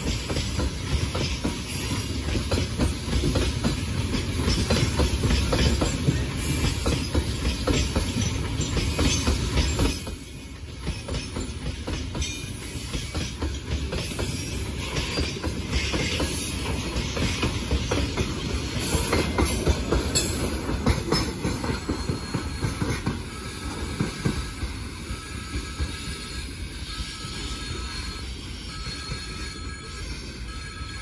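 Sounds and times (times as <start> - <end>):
wheels clacking over rail joints: 0.0 - 24.8
freight train wheels rumbling: 0.0 - 31.0.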